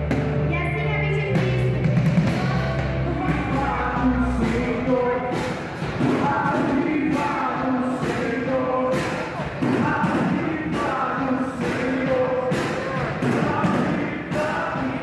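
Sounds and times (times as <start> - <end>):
held bass note: 0.0 - 5.4
steady drum beat: 0.0 - 15.0
voices singing together: 2.3 - 15.0.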